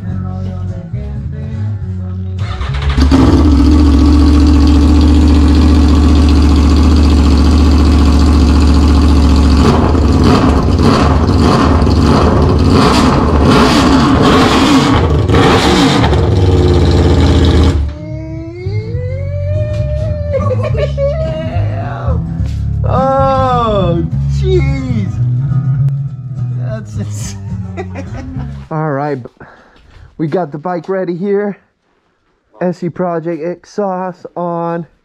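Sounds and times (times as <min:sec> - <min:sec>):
motorcycle engine revving: 0:02.4 - 0:17.9.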